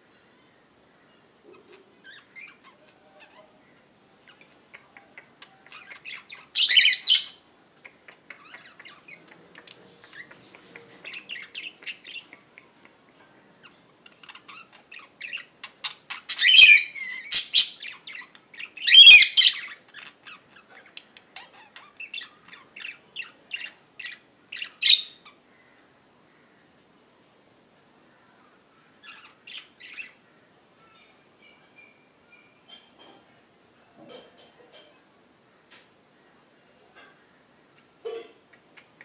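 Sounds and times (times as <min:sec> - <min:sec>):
budgerigars chirping: 0:05.7 - 0:07.4, 0:14.1 - 0:20.7
louder budgerigar calls: 0:18.8 - 0:19.8.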